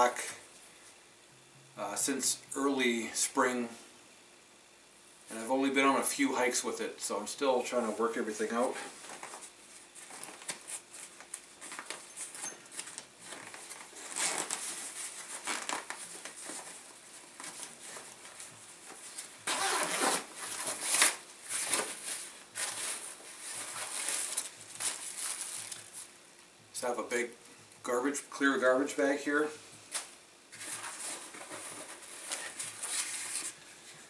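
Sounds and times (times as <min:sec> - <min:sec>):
nylon fabric rustling: 0:08.5 - 0:26.1
zipper pulled open: 0:19.4 - 0:20.6.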